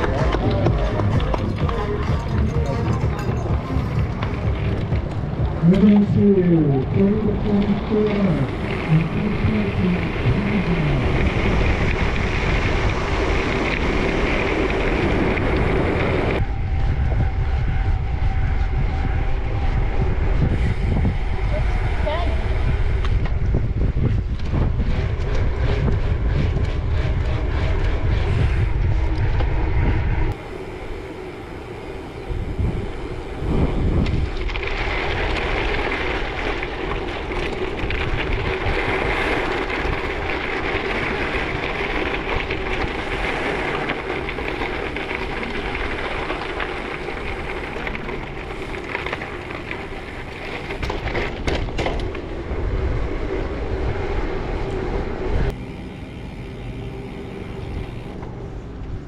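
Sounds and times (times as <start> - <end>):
wind buffeting microphone: 0.0 - 59.0
riding noise hiss: 3.0 - 23.4, 26.9 - 51.2.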